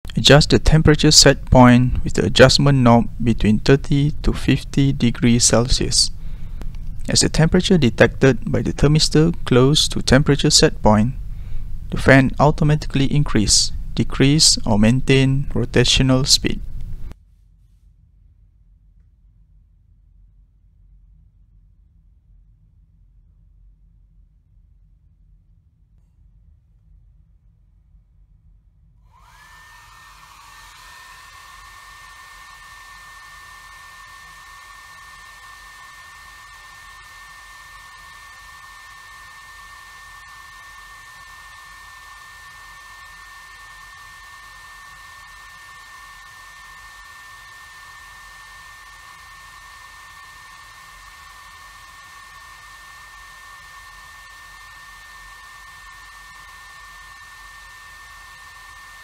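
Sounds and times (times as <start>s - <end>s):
hair dryer whine and air rush: 29.1s - 59.0s.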